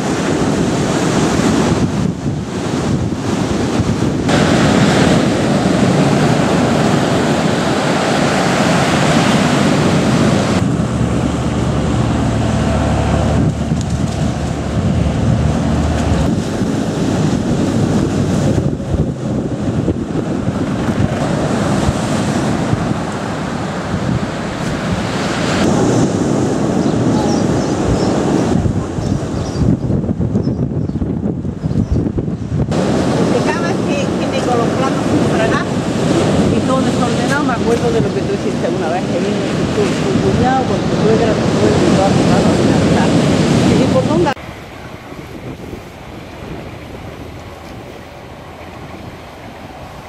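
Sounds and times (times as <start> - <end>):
surf breaking on shingle beach: 0.0 - 29.4, 32.6 - 50.0
wind buffeting microphone: 0.0 - 50.0.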